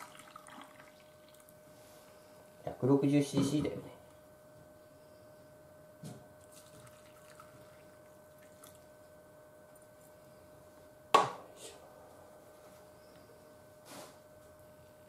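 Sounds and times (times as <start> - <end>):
faint steady hum: 0.0 - 15.0
liquid trickling and dripping: 6.4 - 8.9.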